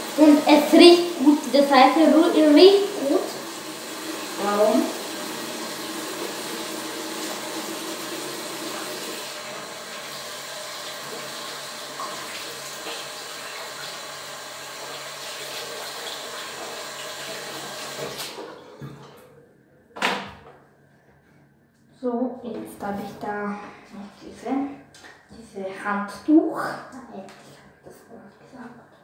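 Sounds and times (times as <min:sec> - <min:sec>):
water running from a tap: 0:00.0 - 0:18.6.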